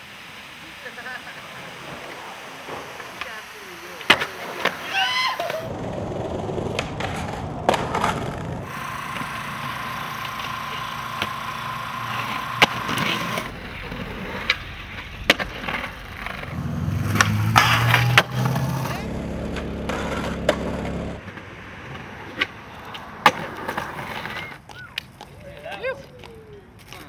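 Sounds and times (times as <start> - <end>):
skateboard wheels rolling on concrete: 0.0 - 27.0
skateboard clacks: 4.0 - 27.0
low hum: 5.6 - 21.3
steady whine: 5.6 - 21.4.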